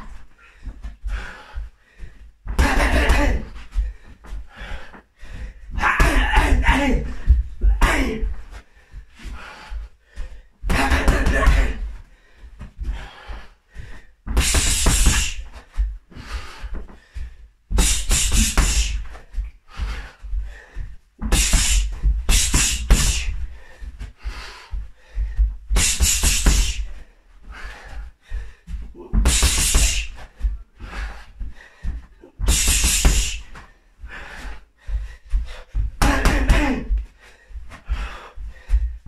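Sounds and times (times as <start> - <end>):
gloves hitting punching bag: 14.3 - 15.6, 17.7 - 19.1, 21.2 - 23.4, 25.7 - 26.9, 29.0 - 30.2, 32.4 - 33.6, 36.0 - 37.0.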